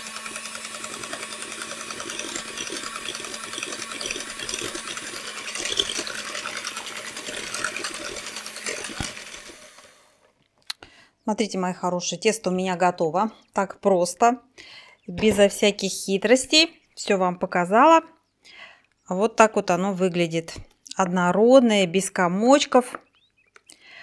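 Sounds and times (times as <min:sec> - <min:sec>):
electric hand mixer running: 0:00.0 - 0:10.3.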